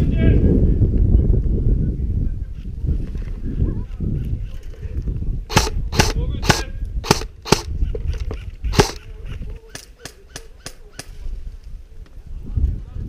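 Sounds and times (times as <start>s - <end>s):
airsoft rifle single shots: 5.5s - 7.7s, 8.7s - 9.0s.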